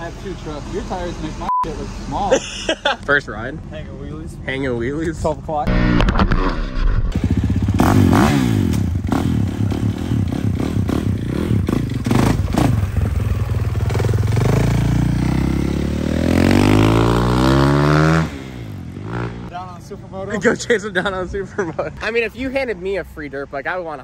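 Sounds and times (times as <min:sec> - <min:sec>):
dirt bike engine revving: 0:05.6 - 0:19.5.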